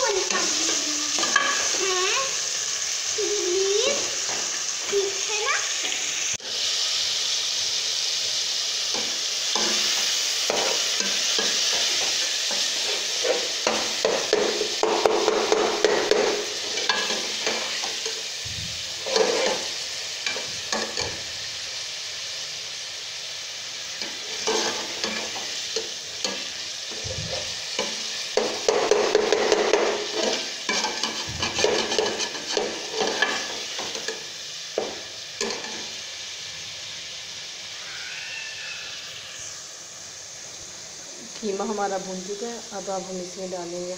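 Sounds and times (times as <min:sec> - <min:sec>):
meat sizzling in oil: 0:00.0 - 0:43.9
ladle scraping pot: 0:19.0 - 0:19.7, 0:28.7 - 0:33.5.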